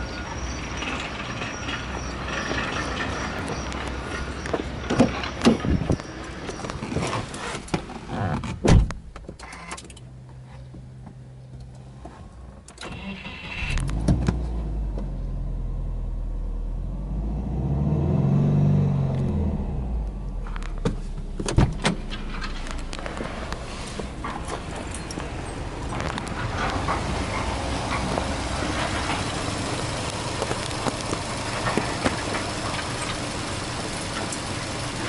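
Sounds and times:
car engine idling and revving: 0:00.0 - 0:35.0
car door shutting: 0:06.8 - 0:09.9, 0:20.7 - 0:24.7
engine starter cranking: 0:12.7 - 0:14.1.

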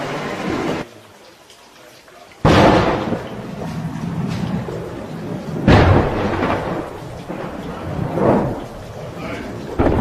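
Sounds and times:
shell explosions booming: 0:02.4 - 0:08.9, 0:09.6 - 0:10.0.

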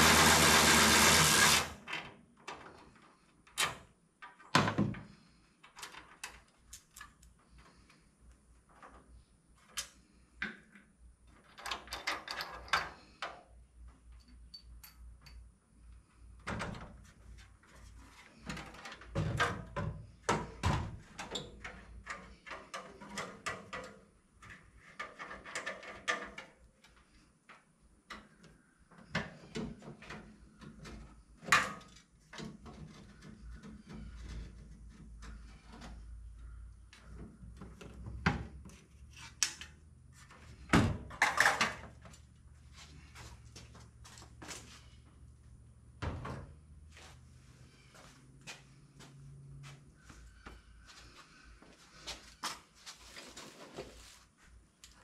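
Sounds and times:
tools and parts knocking: 0:11.4 - 0:13.4.

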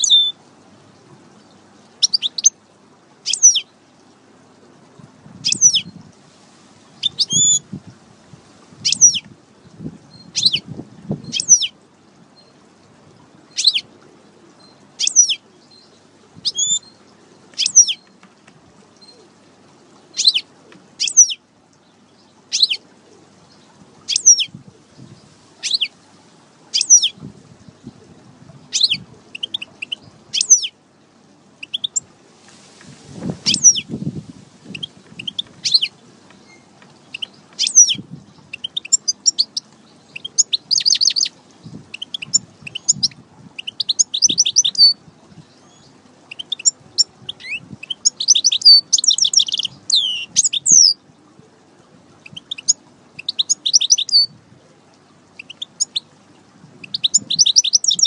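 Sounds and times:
bird twittering and trilling: 0:00.0 - 0:00.4, 0:02.0 - 0:02.5, 0:03.2 - 0:03.6, 0:05.4 - 0:06.0, 0:07.0 - 0:07.6, 0:08.8 - 0:09.3, 0:10.1 - 0:10.6, 0:11.2 - 0:11.7, 0:13.5 - 0:13.8, 0:14.6 - 0:18.1, 0:20.2 - 0:20.4, 0:21.0 - 0:21.4, 0:23.5 - 0:24.5, 0:25.1 - 0:25.9, 0:26.7 - 0:27.2, 0:28.7 - 0:30.7, 0:33.4 - 0:34.0, 0:34.7 - 0:51.0, 0:52.2 - 0:54.4, 0:55.4 - 0:56.1, 0:56.8 - 0:58.0
rustle: 0:00.0 - 0:58.0.

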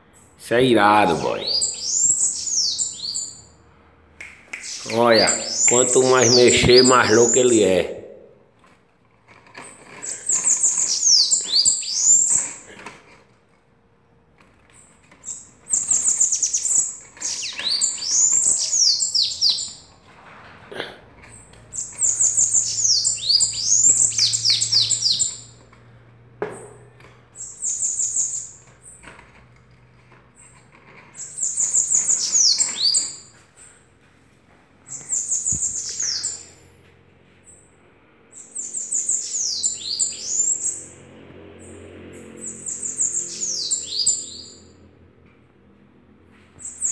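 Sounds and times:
bird singing high thin notes: 0:04.6 - 0:07.5.

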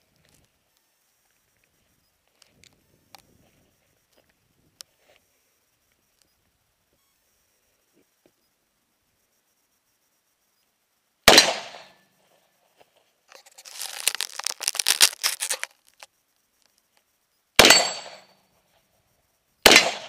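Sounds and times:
rifle shots: 0:11.3 - 0:11.9, 0:17.6 - 0:18.2, 0:19.6 - 0:20.0
dense crackling noise: 0:13.3 - 0:16.9.

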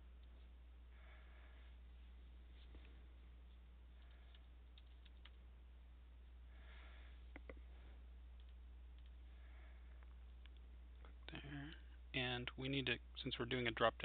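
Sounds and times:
low steady hum: 0:00.0 - 0:14.0
keyboard typing: 0:04.0 - 0:05.4
sharp clicks: 0:04.0 - 0:05.4.

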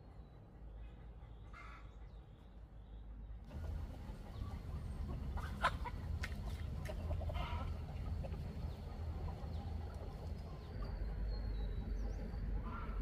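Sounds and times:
low steady hum: 0:00.0 - 0:13.0
chickens clucking: 0:03.5 - 0:11.0.

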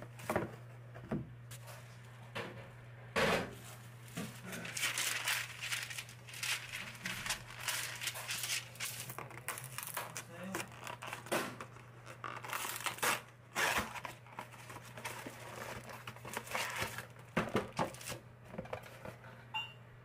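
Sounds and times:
crinkling and rustling: 0:03.6 - 0:19.4.

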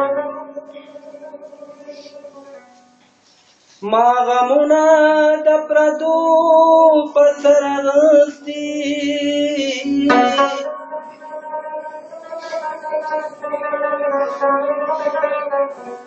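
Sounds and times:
rabab playing: 0:00.0 - 0:03.9, 0:08.9 - 0:16.0
man singing held notes: 0:03.7 - 0:15.2.

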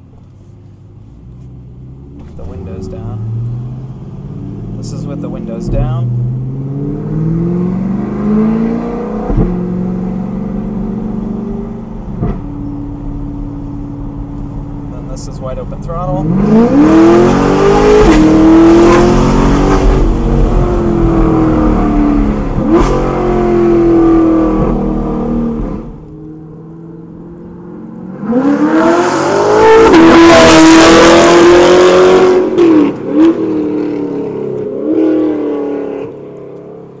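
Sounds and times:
car engine revving with upshifts: 0:00.0 - 0:37.0
car passing at full throttle: 0:27.0 - 0:36.2.

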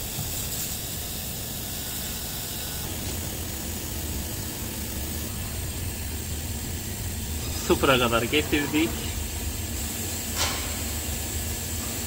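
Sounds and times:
machine shop hum and hiss: 0:00.0 - 0:12.0.

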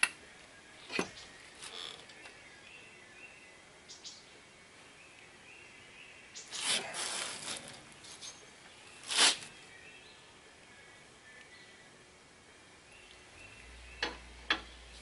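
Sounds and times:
handling noise rustling scrape: 0:06.5 - 0:08.4, 0:09.0 - 0:09.6.

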